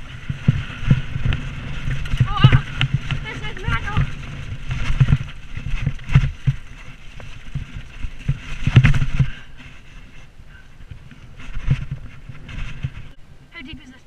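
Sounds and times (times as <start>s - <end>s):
mountain bike rattling over rough ground: 0.0s - 13.2s
wind buffeting microphone: 0.0s - 14.0s.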